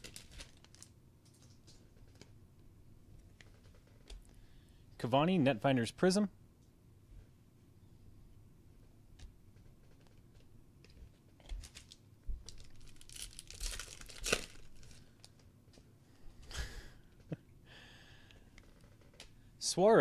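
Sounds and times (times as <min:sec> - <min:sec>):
foil wrapper tearing and crinkling: 0:00.0 - 0:01.5, 0:11.5 - 0:15.3.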